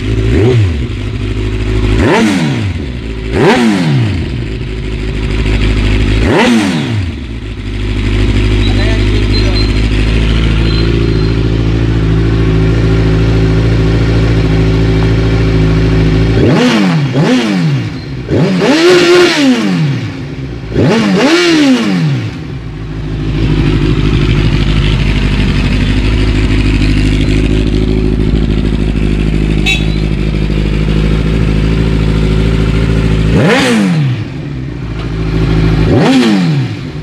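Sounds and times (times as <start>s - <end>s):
motorcycle engine idling and revving: 0.0s - 37.0s.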